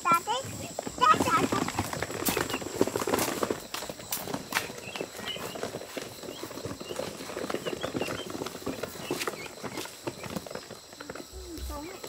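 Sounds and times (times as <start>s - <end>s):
pattering and tapping: 0.3s - 12.0s
ducklings peeping: 1.0s - 3.1s, 4.6s - 10.7s.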